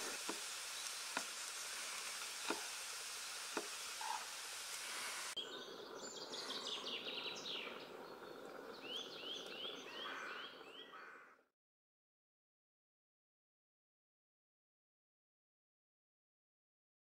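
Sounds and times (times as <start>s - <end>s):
vegetables sizzling in a pan: 0.0s - 5.4s
birds chirping: 0.0s - 11.4s.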